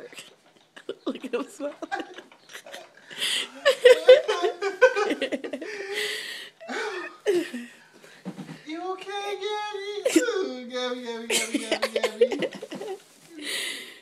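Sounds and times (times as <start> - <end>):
loud laughter: 0.8 - 7.6, 11.3 - 13.0.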